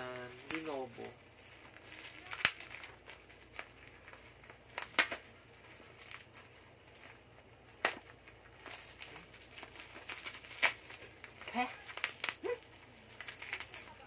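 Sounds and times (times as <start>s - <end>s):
plastic packaging crinkling: 0.0s - 14.0s
plastic snapping: 4.7s - 5.3s, 11.8s - 12.5s.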